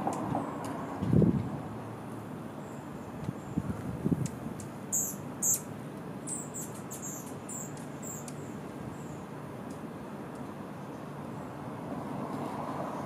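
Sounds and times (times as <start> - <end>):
hummingbird squeaky chip notes: 4.9 - 5.7, 6.3 - 8.5.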